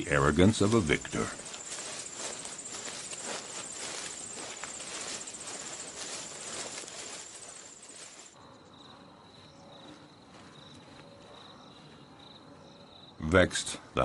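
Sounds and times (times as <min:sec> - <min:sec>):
rustling hiss: 0:00.0 - 0:08.4
insects pulsing buzz: 0:00.0 - 0:14.0.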